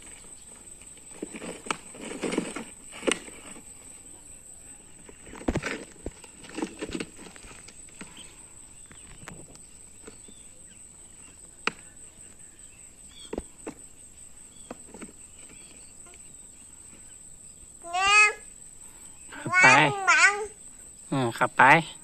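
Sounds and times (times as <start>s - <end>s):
high-pitched insect drone: 17.5s - 22.0s.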